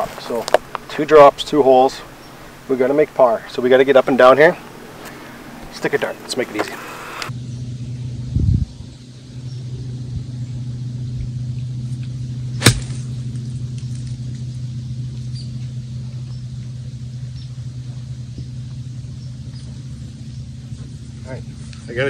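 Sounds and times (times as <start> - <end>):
low engine hum: 0.0 - 22.0
golf club striking ball: 12.5 - 13.2.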